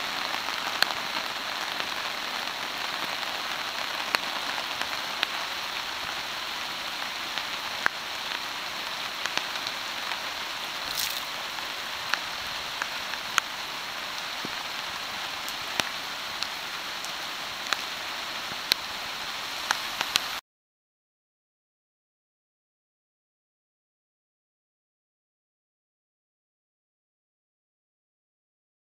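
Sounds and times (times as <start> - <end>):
larger raindrops ticking: 0.0 - 20.4
steady rain hiss: 0.0 - 20.4.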